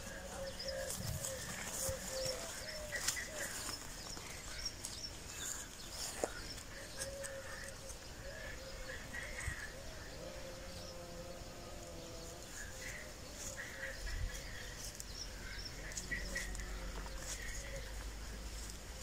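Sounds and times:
low wavering cooing: 0:00.0 - 0:03.7, 0:06.7 - 0:14.8
small birds chirping: 0:00.0 - 0:19.0.

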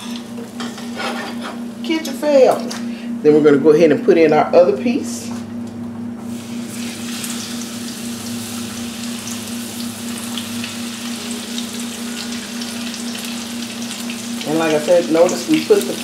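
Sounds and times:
steady low hum: 0:00.0 - 0:16.0
fish sizzling in hot oil: 0:06.3 - 0:16.0.

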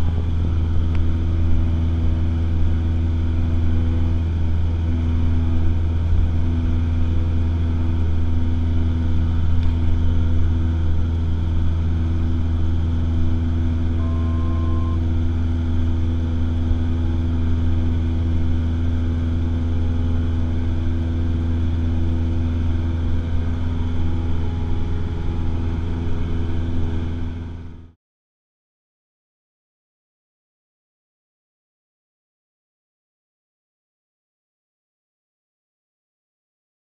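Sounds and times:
light aircraft engine and propeller drone: 0:00.0 - 0:28.0.

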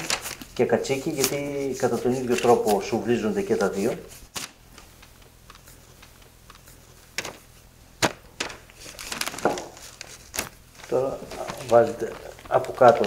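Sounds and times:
faint room hum: 0:00.0 - 0:13.0.

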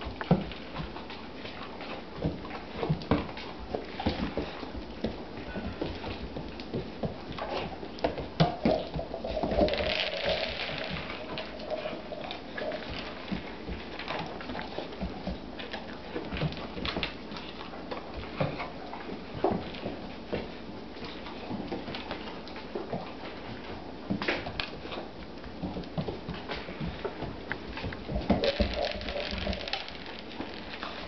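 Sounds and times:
kibble skittering on wood: 0:00.0 - 0:31.0
rubber toy rolling on wooden floor: 0:08.5 - 0:13.4, 0:28.0 - 0:31.0.

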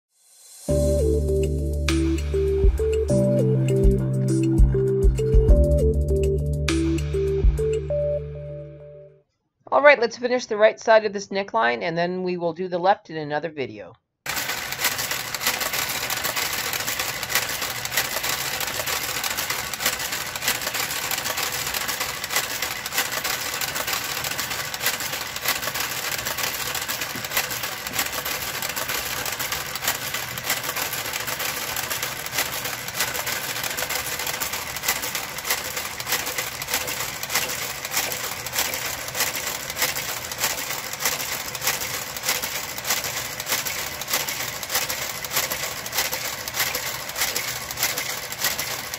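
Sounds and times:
knitting machine carriage clatter: 0:14.3 - 0:48.9.

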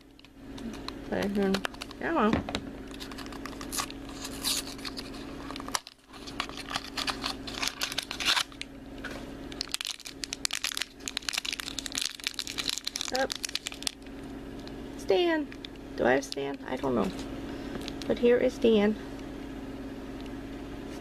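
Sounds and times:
foil wrapper crinkling and tearing: 0:02.9 - 0:08.7, 0:09.5 - 0:14.4, 0:17.8 - 0:18.1.

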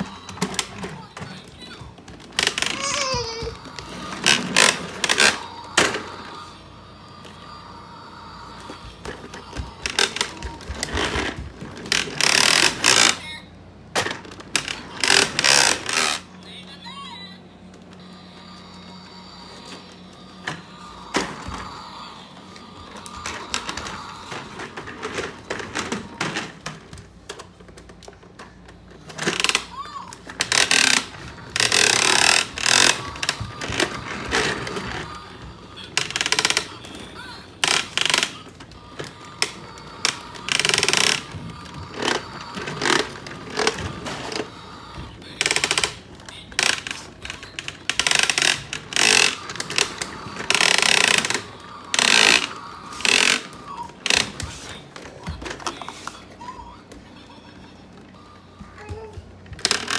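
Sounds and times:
toy vacuum rolling and clattering: 0:00.0 - 0:06.4, 0:08.5 - 0:13.3, 0:13.9 - 0:16.3, 0:22.8 - 0:56.3, 0:58.8 - 0:59.9.

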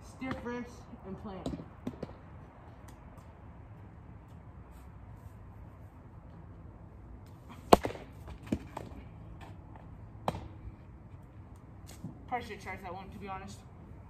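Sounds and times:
ball bouncing on concrete: 0:00.1 - 0:03.4, 0:07.7 - 0:10.6
baseball smacking net: 0:07.5 - 0:09.0.

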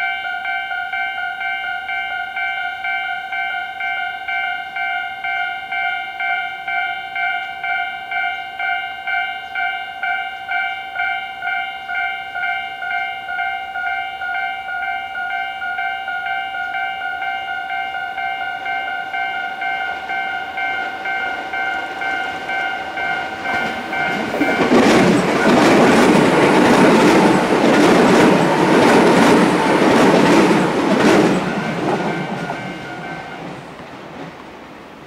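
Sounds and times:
level crossing alarm ringing: 0:00.0 - 0:33.5
train wheels clattering over rail joints: 0:22.2 - 0:34.6.

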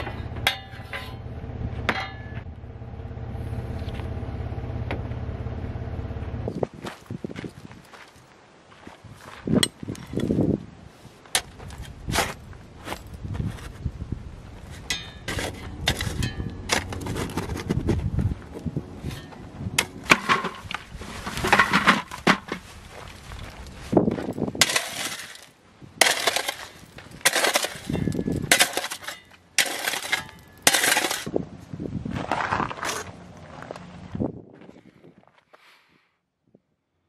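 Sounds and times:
shovel scraping gravelly dirt: 0:09.4 - 0:13.9, 0:14.5 - 0:31.4, 0:32.0 - 0:34.3
stones clinking off shovel: 0:14.7 - 0:17.8, 0:24.3 - 0:31.3.

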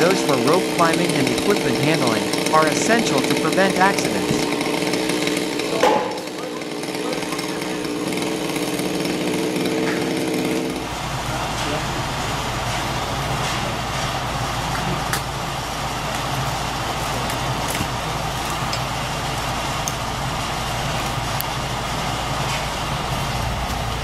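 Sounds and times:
engine running steadily: 0:00.0 - 0:24.0.

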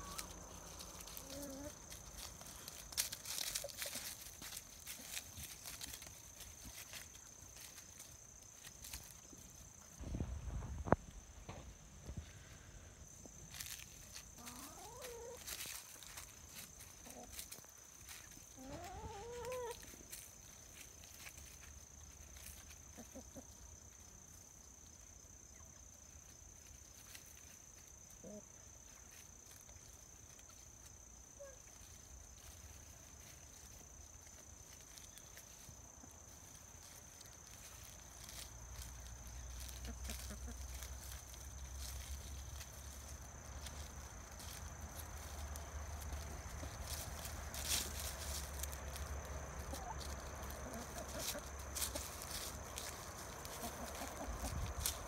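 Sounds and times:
hens calling and clucking: 0:00.0 - 0:08.1, 0:13.5 - 0:21.4, 0:22.2 - 0:24.0, 0:31.3 - 0:55.0.

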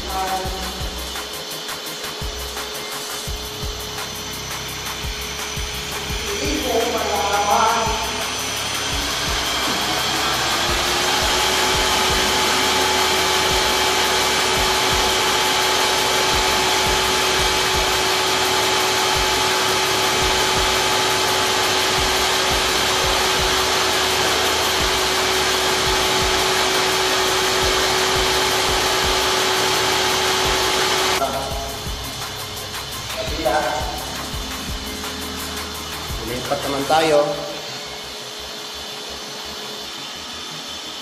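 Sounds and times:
electric motor whining: 0:00.0 - 0:41.0
loud rushing hum: 0:00.0 - 0:41.0.

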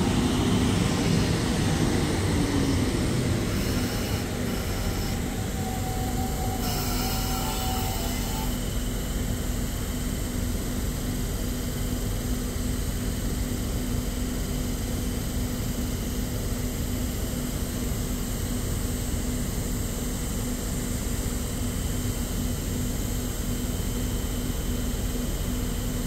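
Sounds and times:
rush of air noise: 0:00.0 - 0:08.9
electric train humming: 0:00.0 - 0:10.6.

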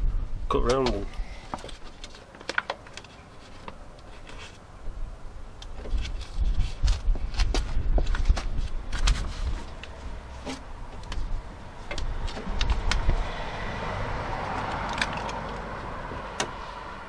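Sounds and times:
plastic sheet crackling and rustling: 0:05.8 - 0:11.4.

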